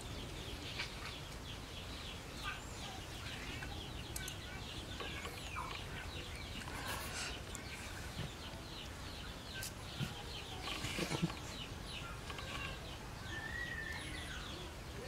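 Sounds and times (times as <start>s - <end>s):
birds chirping: 0.0s - 15.0s
held bird whistle: 13.3s - 14.4s.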